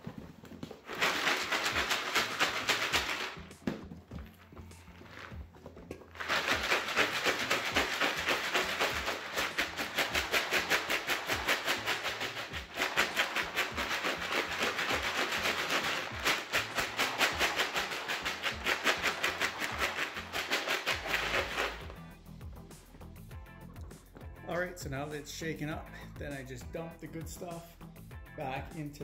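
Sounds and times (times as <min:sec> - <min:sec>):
cat litter rattling in plastic pan: 0:00.1 - 0:03.8, 0:06.2 - 0:21.9.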